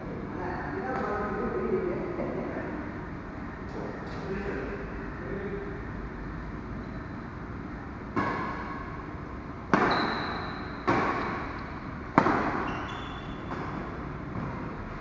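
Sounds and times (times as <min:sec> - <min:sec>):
rackets hitting shuttlecock: 0:08.1 - 0:08.8, 0:09.7 - 0:14.6
shoes squeaking on court: 0:09.8 - 0:11.3, 0:12.4 - 0:13.9.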